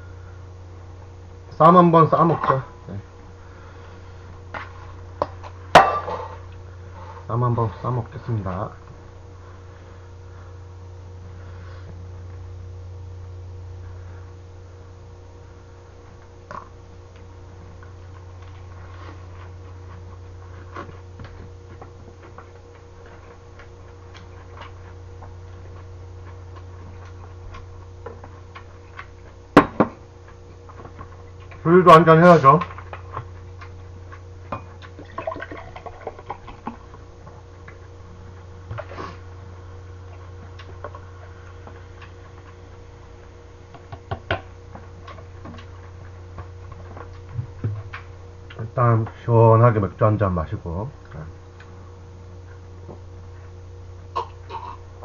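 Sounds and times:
steady low hum: 0.0s - 55.0s
beer pouring and fizzing: 35.0s - 36.6s.

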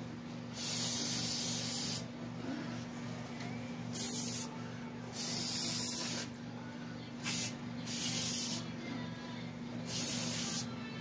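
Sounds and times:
aerosol can spraying: 0.6s - 2.1s, 3.9s - 4.5s, 5.1s - 6.3s, 7.2s - 8.6s, 9.9s - 10.7s.

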